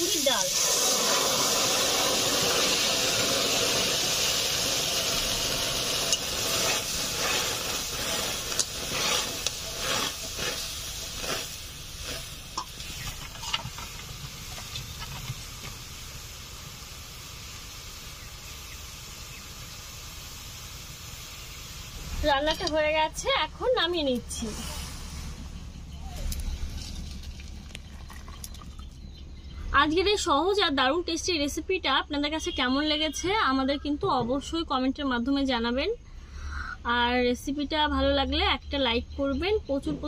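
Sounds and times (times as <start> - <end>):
lentils sizzling in hot oil: 0.0 - 25.3
spatula scraping a pan: 6.1 - 14.0.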